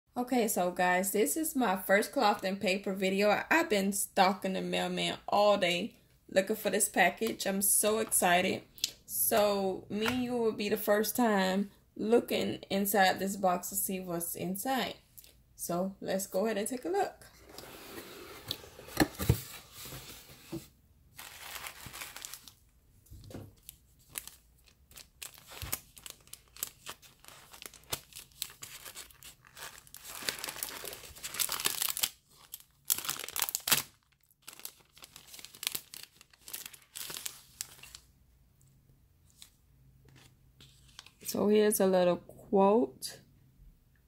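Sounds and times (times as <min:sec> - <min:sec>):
paper and plastic crinkling: 0:21.2 - 0:38.1
packing tape tearing: 0:23.6 - 0:38.0.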